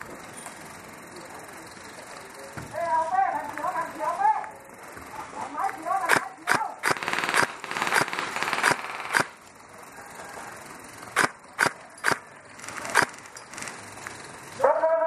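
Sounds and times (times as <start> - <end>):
airsoft gun shots: 6.0 - 9.4, 11.2 - 12.2.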